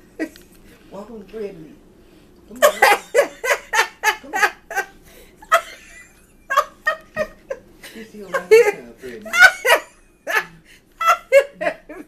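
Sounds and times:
person laughing: 0:02.6 - 0:12.0.

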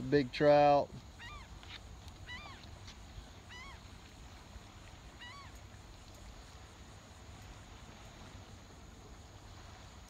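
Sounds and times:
bird honking calls: 0:01.2 - 0:01.5, 0:02.2 - 0:02.7, 0:03.4 - 0:03.8, 0:05.2 - 0:05.6.

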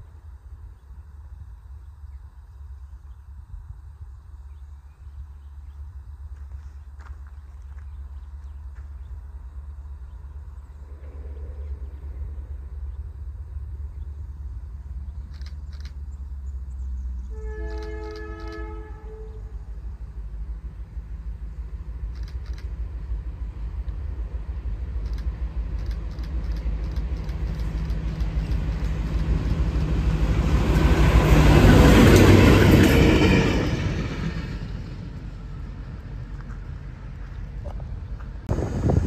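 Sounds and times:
diesel locomotive engine rumble: 0:00.0 - 0:39.0
rail noise: 0:00.0 - 0:39.0
locomotive horn chord: 0:17.2 - 0:19.8.

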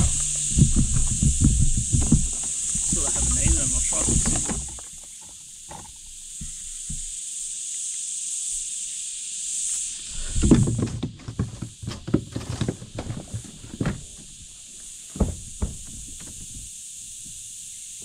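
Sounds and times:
fishing gear knocking and clattering: 0:00.0 - 0:05.9
thumps: 0:00.0 - 0:07.1, 0:10.2 - 0:17.4
high-pitched hiss: 0:00.0 - 0:18.0.

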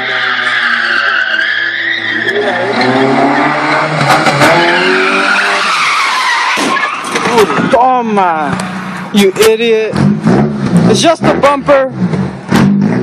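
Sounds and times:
car engine revving high: 0:00.0 - 0:07.7, 0:09.8 - 0:13.0
car tyres squealing: 0:00.0 - 0:09.1.

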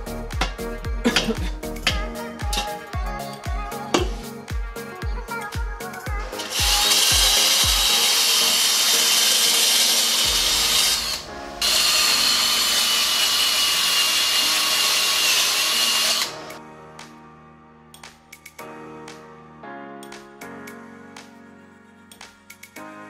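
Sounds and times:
music with thumping beat: 0:00.0 - 0:07.9, 0:10.2 - 0:11.6
electric drill polishing metal: 0:06.2 - 0:16.6.

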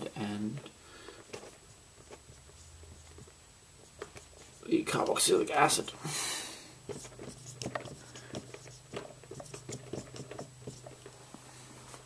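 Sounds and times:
marker pen scratching on whiteboard: 0:01.4 - 0:05.1, 0:06.8 - 0:11.2.

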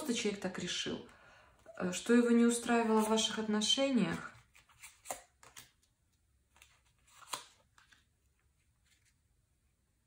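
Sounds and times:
cards rustling and tapping: 0:04.1 - 0:09.2.

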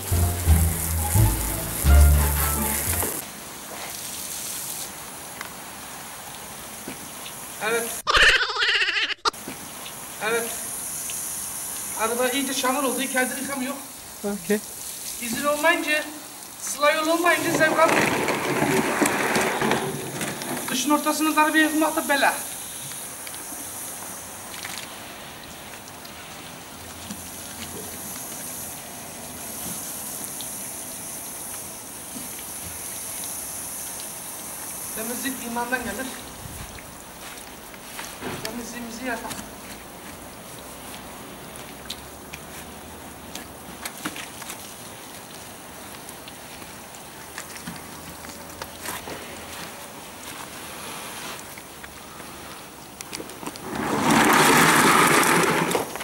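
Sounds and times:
water spraying on car: 0:00.0 - 0:07.5, 0:09.9 - 0:47.3.

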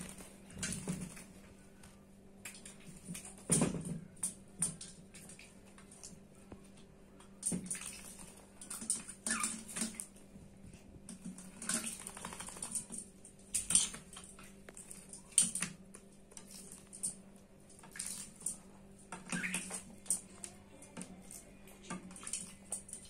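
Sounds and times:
birds splashing in water: 0:07.4 - 0:10.2, 0:11.1 - 0:15.8, 0:16.4 - 0:20.2, 0:21.3 - 0:23.0.

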